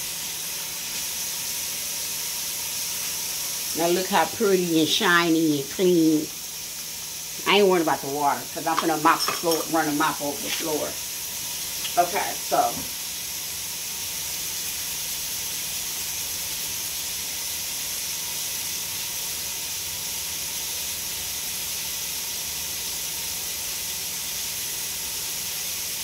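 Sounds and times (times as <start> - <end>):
faucet water running into sink: 0.0 - 26.0.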